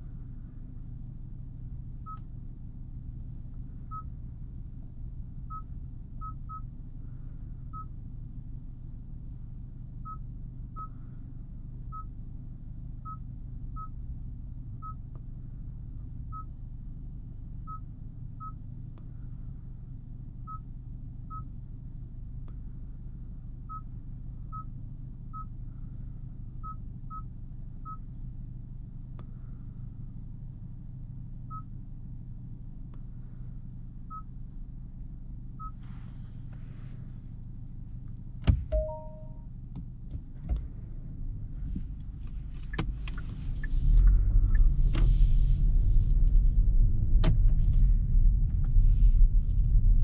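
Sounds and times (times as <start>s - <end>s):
car engine idling hum: 0.0s - 50.0s
short single beeps: 38.7s - 39.5s.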